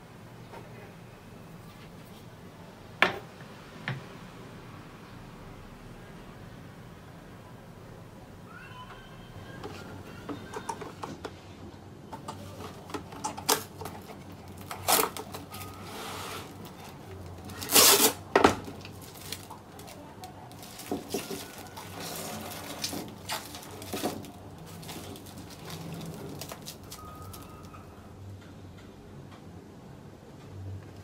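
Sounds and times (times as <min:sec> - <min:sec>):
plastic wrap crackling: 0:12.4 - 0:27.9
plastic wrap torn on cutter: 0:13.4 - 0:15.8, 0:17.4 - 0:27.5.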